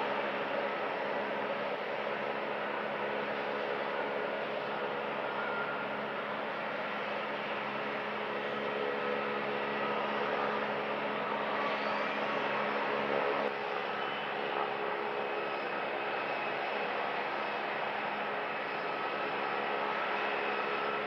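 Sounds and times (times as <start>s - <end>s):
aircraft engines idling and taxiing: 0.0s - 21.0s.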